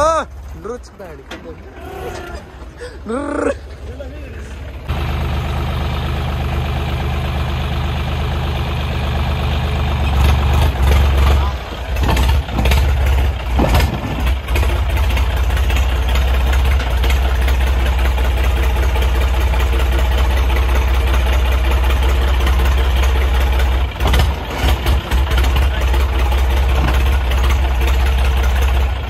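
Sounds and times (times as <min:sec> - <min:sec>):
diesel tractor engine under load: 0:00.0 - 0:29.0.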